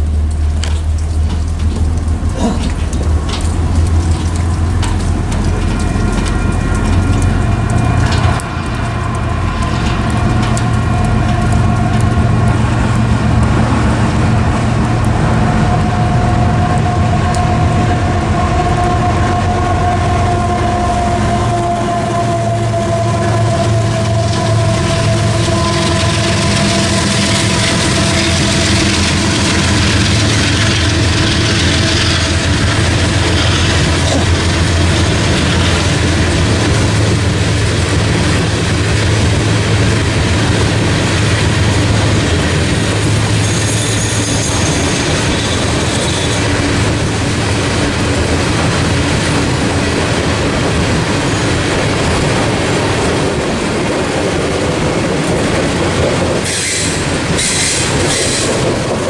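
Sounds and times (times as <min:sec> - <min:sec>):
diesel locomotive rumble: 0:00.0 - 0:59.0
steel wheels hissing on rails: 0:14.6 - 0:59.0.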